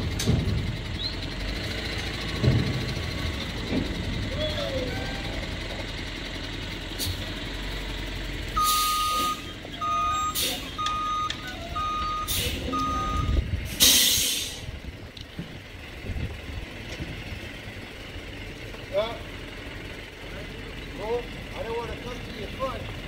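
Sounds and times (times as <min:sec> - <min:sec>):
diesel truck engine running: 0:00.0 - 0:23.0
truck reversing alarm beeping: 0:07.4 - 0:14.6
loud air hisses: 0:13.7 - 0:14.7.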